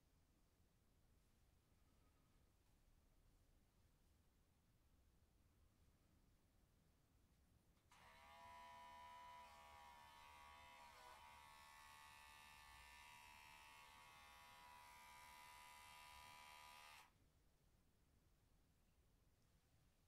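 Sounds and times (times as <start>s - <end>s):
hair clipper buzzing: 7.9s - 17.1s.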